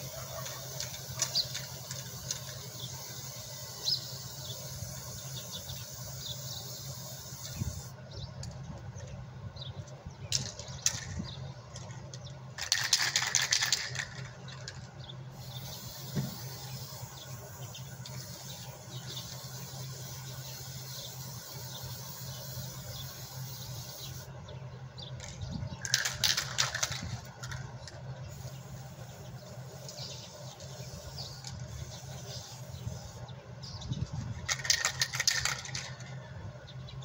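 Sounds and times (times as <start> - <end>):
aerosol spray can hissing: 0.0 - 7.9, 15.4 - 24.3.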